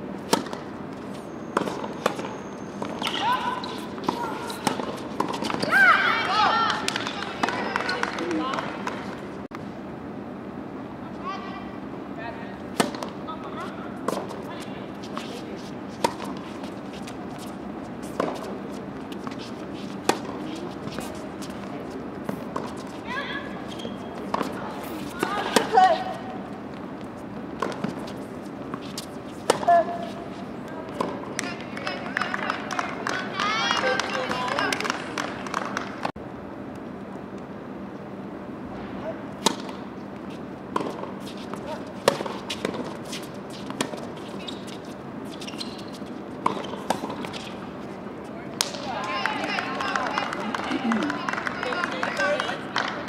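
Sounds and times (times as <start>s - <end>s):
racket striking tennis ball: 0.2s - 0.7s, 1.6s - 9.2s, 12.7s - 13.2s, 15.1s - 23.0s, 24.1s - 26.4s, 27.5s - 30.3s, 30.9s - 31.9s, 39.4s - 39.9s, 40.7s - 44.9s, 45.7s - 47.7s
tennis ball hit with rackets: 0.2s - 0.7s, 12.7s - 13.2s, 27.6s - 30.0s, 30.9s - 31.6s, 39.4s - 39.9s, 40.7s - 43.0s.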